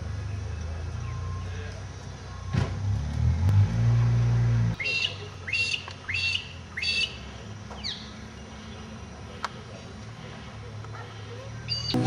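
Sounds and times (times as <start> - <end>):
bird calling: 4.8 - 12.0.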